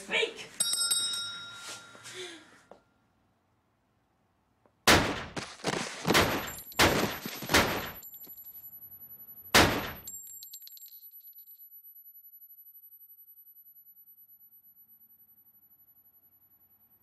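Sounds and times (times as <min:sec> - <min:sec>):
high ringing tone: 0:00.6 - 0:02.8, 0:08.0 - 0:17.0
gunshots: 0:04.8 - 0:08.0, 0:09.5 - 0:10.1.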